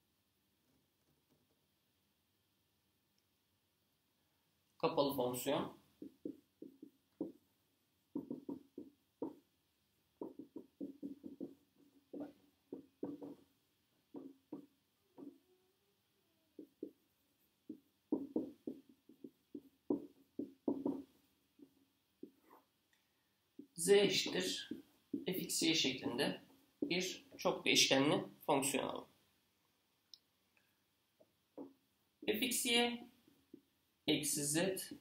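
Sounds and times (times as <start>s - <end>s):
marker writing on a whiteboard: 5.3s - 15.6s, 16.2s - 22.9s, 23.5s - 27.8s, 31.2s - 35.0s.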